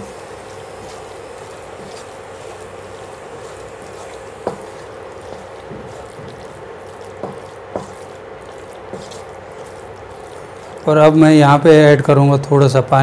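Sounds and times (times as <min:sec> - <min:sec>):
spatula stirring vegetables: 0:00.0 - 0:12.0
steady hum: 0:00.0 - 0:12.4
soft frying sounds: 0:00.0 - 0:13.0
spatula knocking against pan: 0:07.2 - 0:08.1.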